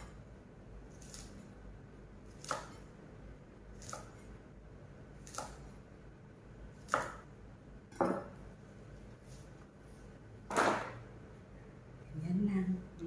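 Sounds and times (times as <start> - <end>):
knife chopping on wooden board: 2.3 - 2.9, 5.2 - 5.7, 6.8 - 7.3.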